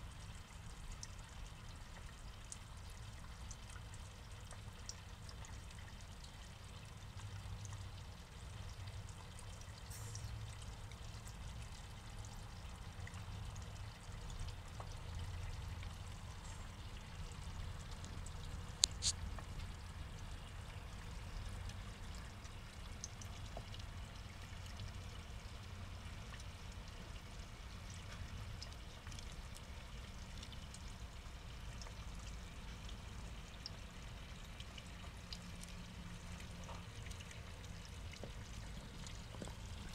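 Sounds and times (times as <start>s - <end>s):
water trickling into pond: 0.0s - 39.9s.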